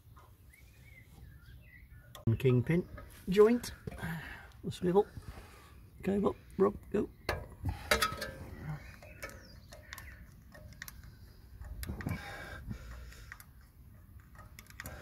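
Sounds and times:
grease gun clicks and knocks: 0:07.2 - 0:12.2, 0:12.8 - 0:15.0.

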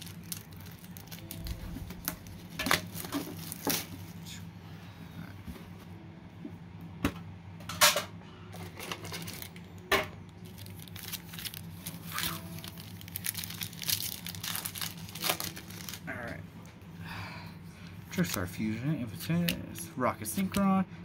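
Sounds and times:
foil packs crinkling: 0:00.0 - 0:04.4, 0:08.6 - 0:09.7, 0:10.3 - 0:16.3.

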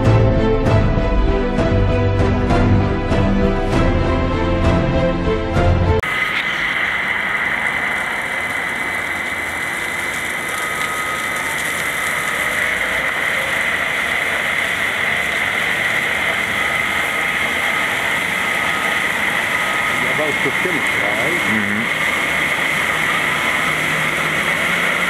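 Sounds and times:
wire saw cutting stone: 0:08.3 - 0:25.0.

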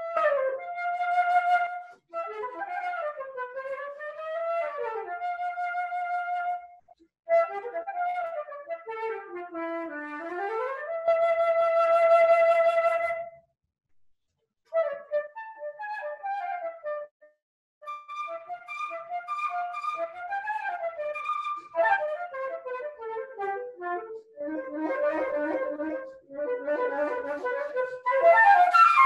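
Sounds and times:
flute playing: 0:17.8 - 0:29.0.

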